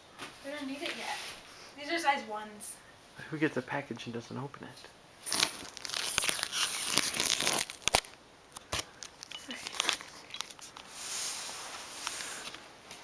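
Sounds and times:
tape and cardboard rustling: 5.2 - 13.0
scissors slicing packing tape: 5.3 - 10.6.

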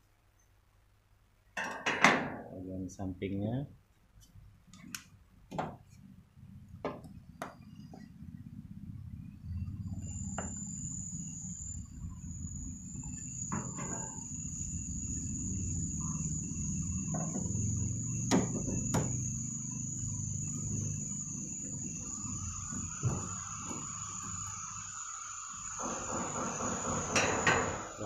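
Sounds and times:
high-pitched whine: 6.9 - 28.0.

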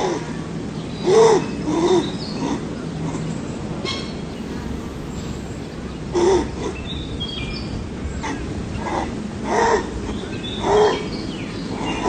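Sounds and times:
harsh caw-like animal calls: 8.2 - 12.0.

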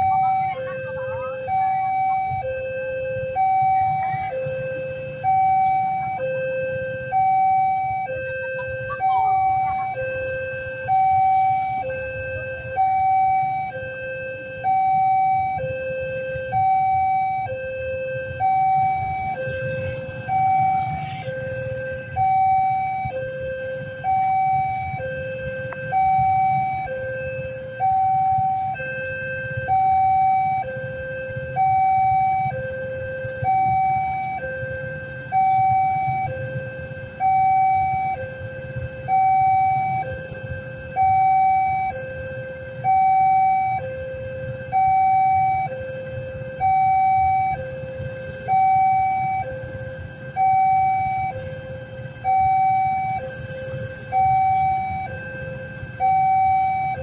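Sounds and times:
motorcycles idling: 0.0 - 57.0
two-tone level crossing siren: 0.0 - 57.0.

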